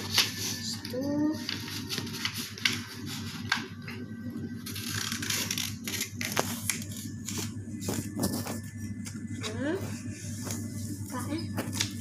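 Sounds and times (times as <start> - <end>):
paper rustling and crackling: 0.0 - 4.0, 4.6 - 9.6.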